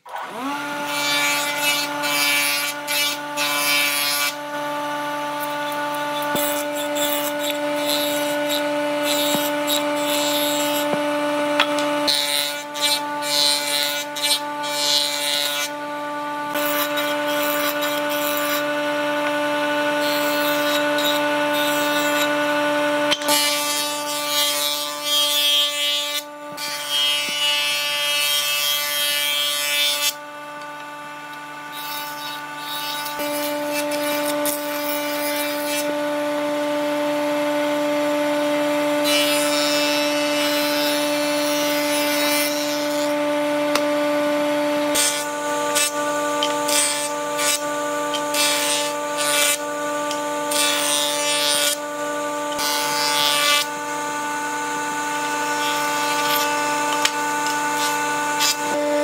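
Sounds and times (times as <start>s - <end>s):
power tool motor whine: 0.0s - 59.0s
tool rasping into wood: 5.2s - 15.8s, 16.5s - 22.4s, 44.9s - 51.9s, 55.2s - 58.8s.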